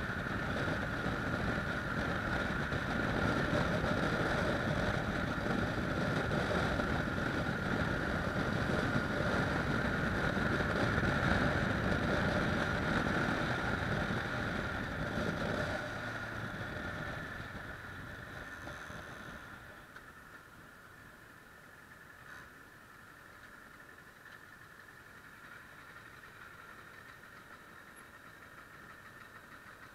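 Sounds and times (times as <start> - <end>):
wind noise on microphone: 0.0 - 18.2
motorcycle engine running: 0.0 - 29.9.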